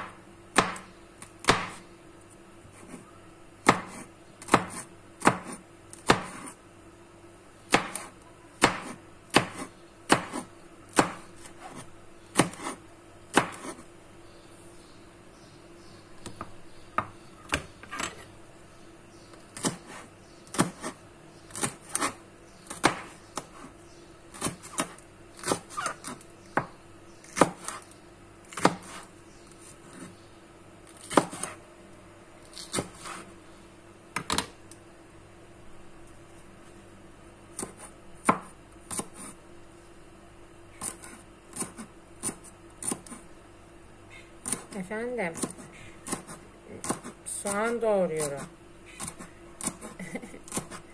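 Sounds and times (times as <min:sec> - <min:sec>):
knife chopping on cutting board: 0:00.0 - 0:00.8, 0:03.6 - 0:06.6, 0:07.7 - 0:13.8, 0:19.6 - 0:23.7, 0:28.5 - 0:29.1, 0:37.6 - 0:39.3, 0:45.4 - 0:47.2.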